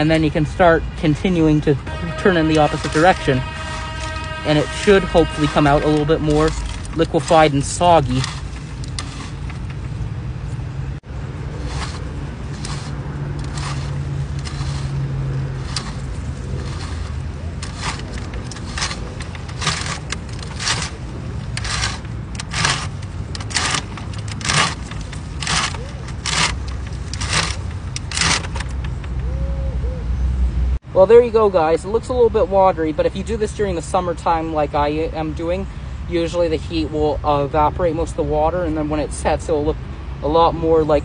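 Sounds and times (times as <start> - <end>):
rhythmic scraping click: 1.9 - 10.0, 11.7 - 15.0, 15.6 - 29.3.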